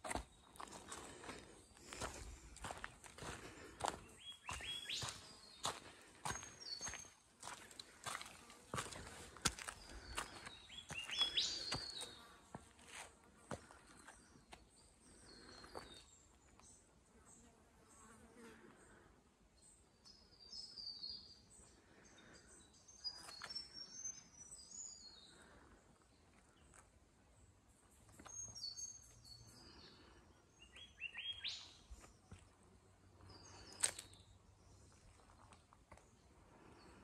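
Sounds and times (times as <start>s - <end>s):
birds chirping: 0.0s - 12.6s, 13.4s - 16.9s, 28.1s - 32.5s.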